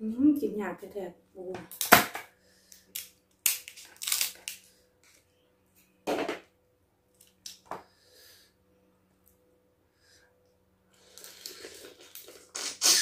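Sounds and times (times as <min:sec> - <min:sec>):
crab shell cracking: 0:02.7 - 0:04.6.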